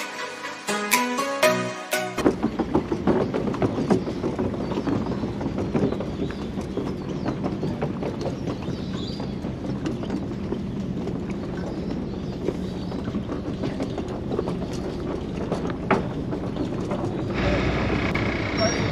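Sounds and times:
fast clatter of small knocks: 0:02.2 - 0:17.3
boat engine drone: 0:04.4 - 0:18.9.

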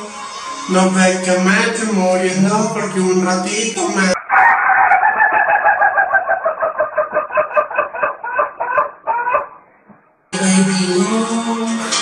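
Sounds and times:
rooster crowing: 0:04.2 - 0:09.5.

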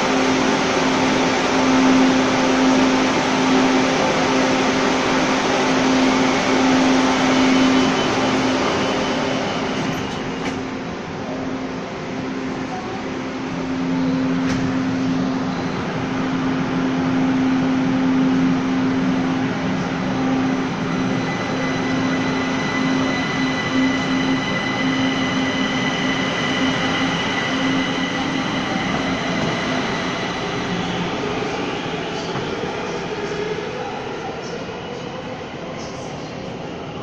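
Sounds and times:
train wheels rumbling: 0:13.7 - 0:33.5.

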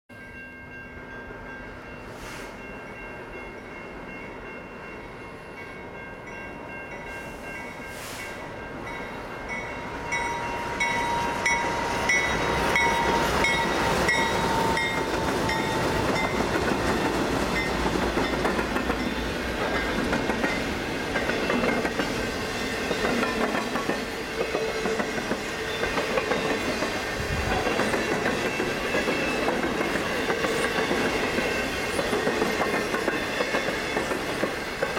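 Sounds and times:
diesel locomotives passing: 0:00.2 - 0:34.9
train wheels clicking over rail joints: 0:10.9 - 0:34.9.

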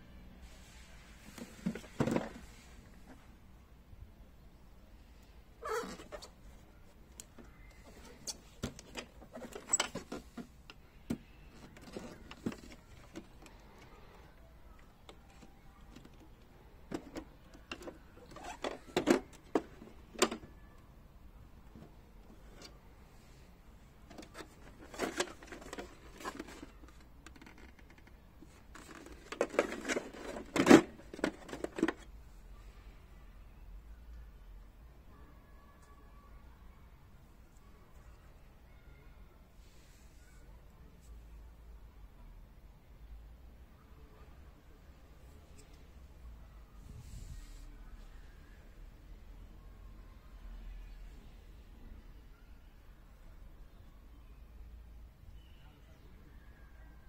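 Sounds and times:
plastic case clicks and rattles: 0:24.1 - 0:32.1.

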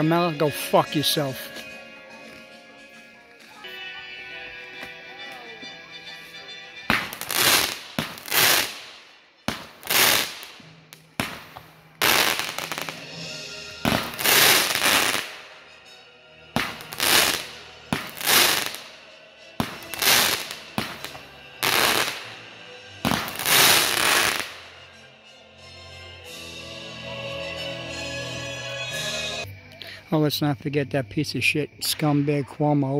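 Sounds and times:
fireworks bangs with hiss: 0:06.9 - 0:15.4, 0:16.6 - 0:18.9, 0:19.6 - 0:22.4, 0:23.0 - 0:24.6.

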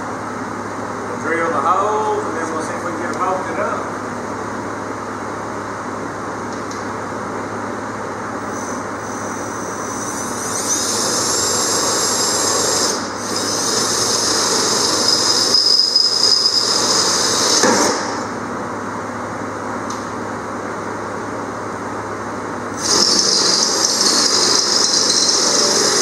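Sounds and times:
drill whining in metal: 0:08.5 - 0:18.2, 0:22.8 - 0:26.0.

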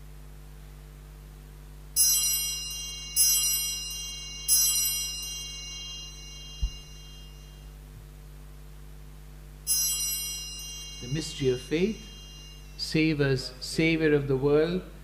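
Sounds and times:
altar bell ringing: 0:02.0 - 0:07.8, 0:09.7 - 0:13.7
low thump: 0:06.6 - 0:07.0.

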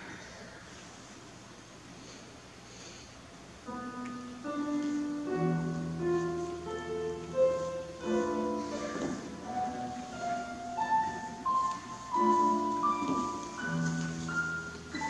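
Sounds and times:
slow classical instrumental music: 0:03.6 - 0:15.0.

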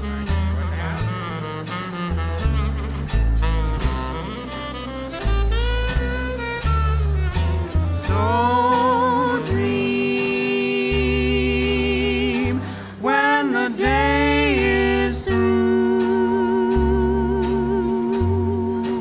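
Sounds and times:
archtop guitar: 0:00.0 - 0:19.0
drums: 0:00.0 - 0:19.0
walking bass line: 0:00.0 - 0:19.0
woman and man singing: 0:08.0 - 0:19.0.

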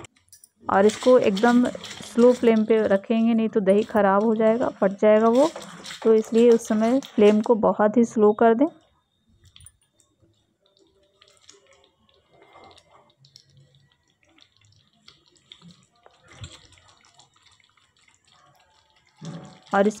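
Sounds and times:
curry simmering in a pan: 0:04.1 - 0:07.6, 0:10.0 - 0:20.0.

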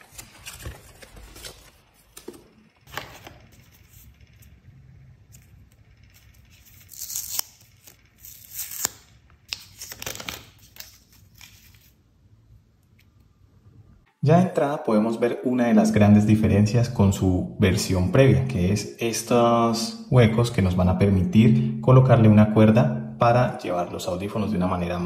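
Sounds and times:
paper rustling: 0:00.0 - 0:04.5, 0:06.1 - 0:12.0
plastic film crinkling and tearing: 0:06.1 - 0:12.0.

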